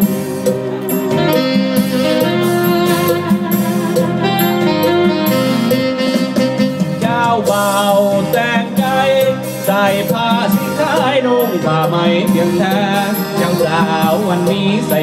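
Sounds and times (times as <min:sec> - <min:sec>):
dance song with singing: 0:07.0 - 0:15.0.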